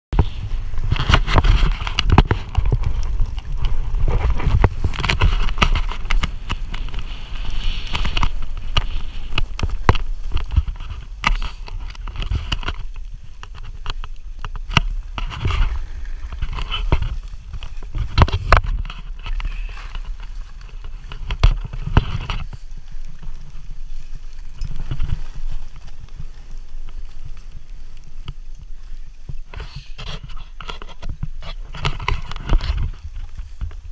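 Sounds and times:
wind buffeting microphone: 0.1s - 30.2s
skis hissing through snow: 2.7s - 10.3s, 22.5s - 30.0s.

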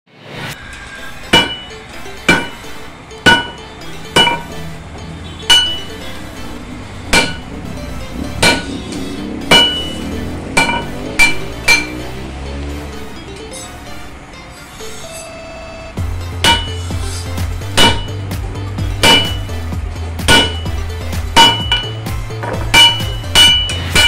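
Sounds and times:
hammer striking steel on anvil: 0.6s - 4.6s, 5.4s - 6.0s, 7.0s - 7.5s, 8.4s - 8.8s, 9.4s - 12.0s, 16.2s - 24.0s.

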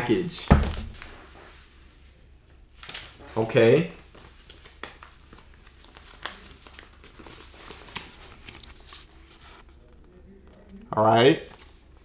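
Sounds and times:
paper and packaging crinkling: 4.0s - 10.8s.

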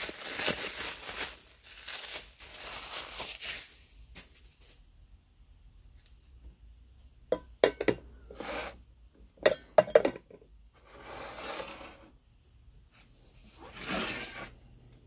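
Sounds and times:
soft scraping: 8.3s - 8.8s, 10.8s - 12.2s, 12.9s - 15.0s.

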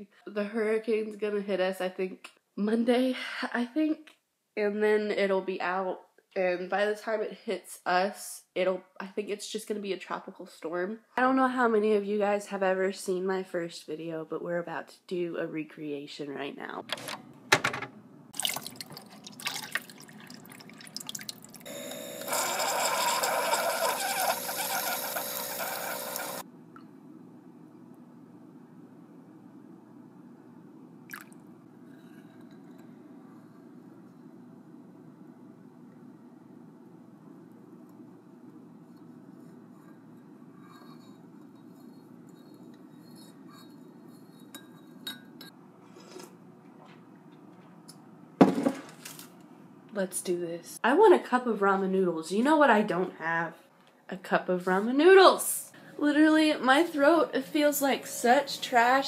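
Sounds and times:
coffee machine humming: 21.6s - 26.4s
coffee streaming into mug: 22.2s - 26.4s
metal spoon stirring in bowl: 39.4s - 45.6s.

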